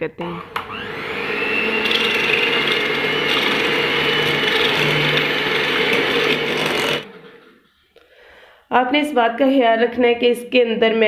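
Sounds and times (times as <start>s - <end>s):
electric hand mixer whining: 0.3s - 7.2s.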